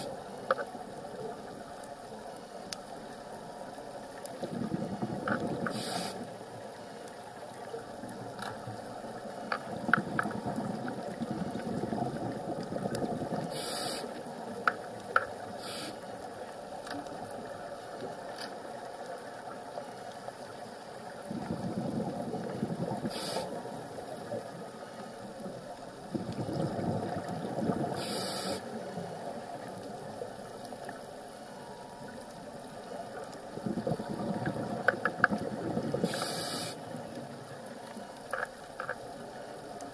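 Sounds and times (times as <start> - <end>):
faint clicks: 0.0 - 39.9
underwater breathing bubbles: 4.3 - 6.4, 9.6 - 14.3, 21.3 - 23.8, 26.0 - 29.0, 33.5 - 37.1.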